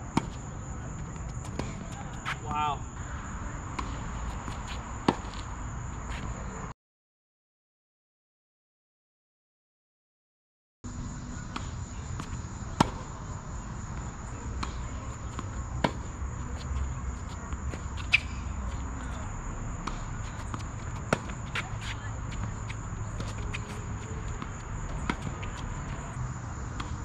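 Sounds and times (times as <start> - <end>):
high insect drone: 0.0 - 6.6, 10.9 - 27.0
tennis ball struck by rackets: 0.1 - 2.4, 3.0 - 5.5, 11.4 - 27.0.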